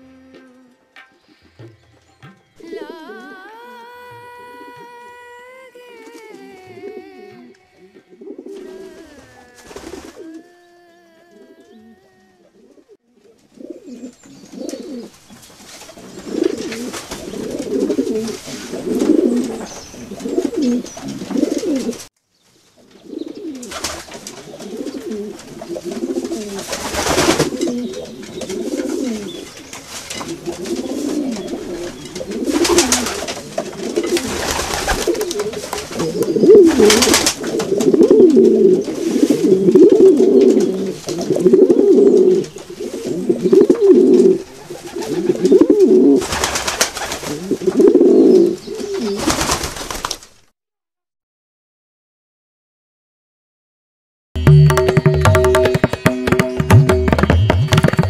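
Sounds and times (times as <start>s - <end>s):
pigeons cooing: 6.2s - 15.2s, 15.8s - 22.1s, 23.0s - 49.7s.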